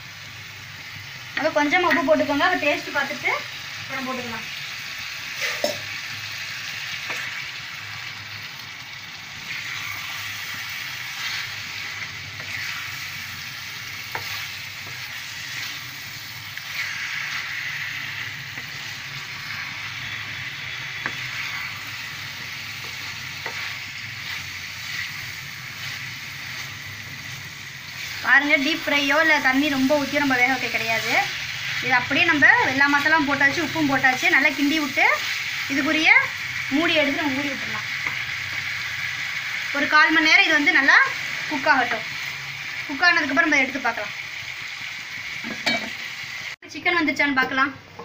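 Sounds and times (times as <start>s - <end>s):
food sizzling in a pan: 0.0s - 48.0s
wooden spatula stirring: 13.8s - 15.9s, 20.8s - 26.8s.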